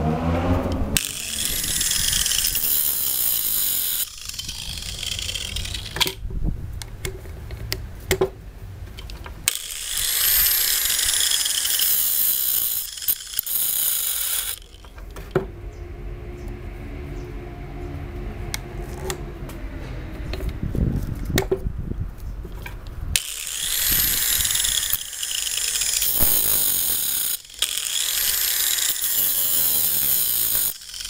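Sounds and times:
angle grinder sharpening chain: 1.0 - 6.2, 9.5 - 15.0, 23.2 - 31.0
chain clicking along bar: 1.0 - 6.2, 9.5 - 15.0, 23.2 - 31.0.

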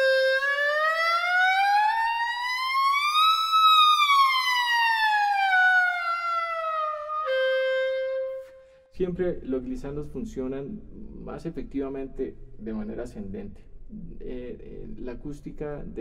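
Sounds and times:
clarinet glissando: 0.0 - 0.7, 6.8 - 8.8.

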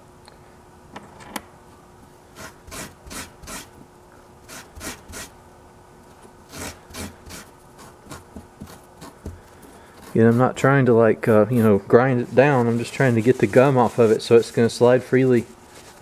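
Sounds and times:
brush scraping on scouring pad: 9.8 - 16.0.

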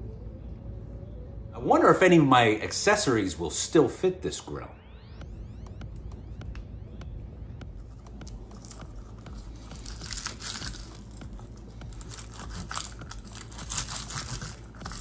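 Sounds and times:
garlic skins crackling: 8.4 - 15.0.

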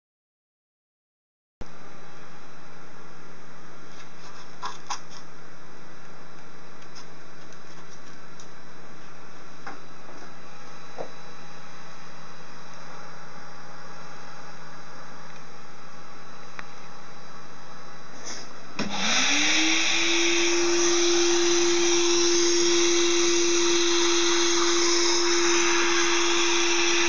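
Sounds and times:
vacuum cleaner running: 18.8 - 27.0.

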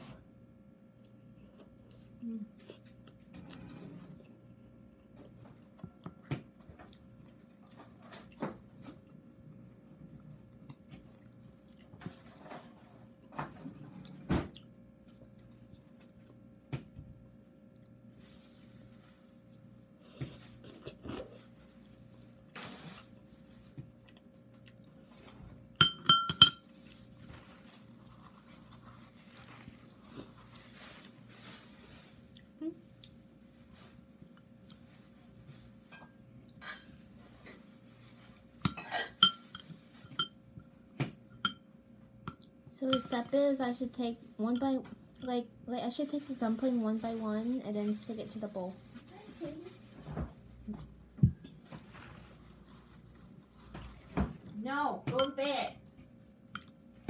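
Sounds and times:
faint steady hum: 0.0 - 57.0
utensils clinking against bowl: 25.8 - 26.7, 38.6 - 40.4, 42.3 - 43.4.

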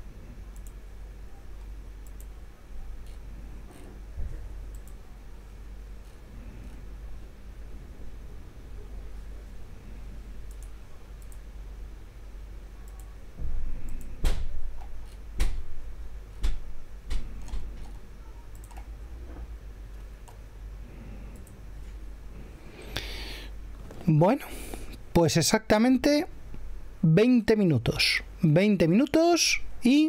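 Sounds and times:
low steady hum: 0.0 - 30.0
sharp clicks: 2.0 - 2.4, 10.4 - 11.4.

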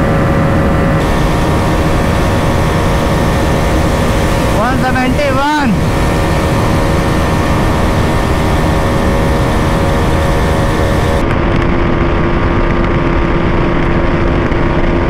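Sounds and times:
motorcycle engines racing: 0.0 - 11.2
wind rushing over microphone: 0.0 - 15.0.

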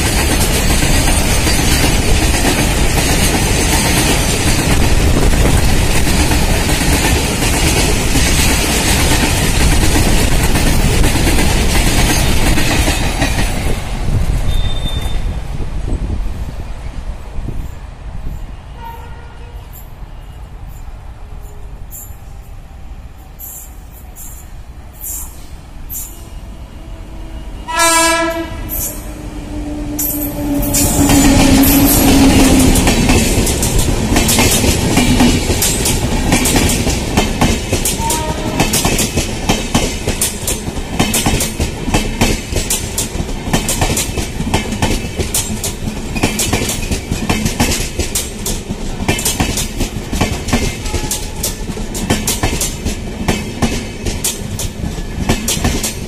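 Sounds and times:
train rushing past: 0.0 - 56.0
train horn: 18.7 - 19.9, 26.1 - 33.1, 38.0 - 38.9, 50.8 - 51.6.

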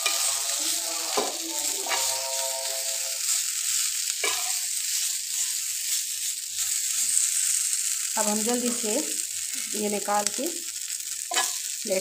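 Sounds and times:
metal tongs scraping griddle: 0.0 - 3.4, 4.2 - 5.5
meat sizzling on a griddle: 0.0 - 12.0.

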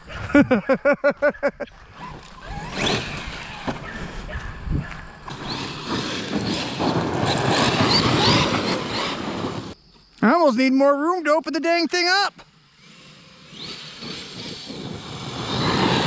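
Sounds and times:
tyres on gravel: 1.8 - 9.8
electric motor whine: 12.6 - 16.0.

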